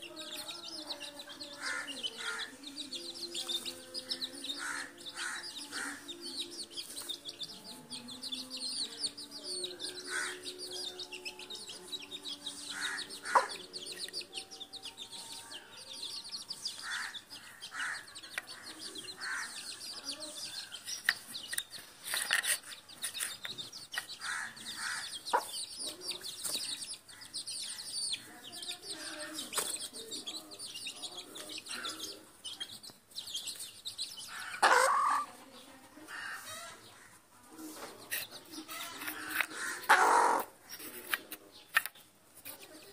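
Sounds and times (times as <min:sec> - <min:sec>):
chicks peeping: 0:00.0 - 0:42.9
hen clucking: 0:09.7 - 0:14.2, 0:34.1 - 0:37.1, 0:37.8 - 0:40.6.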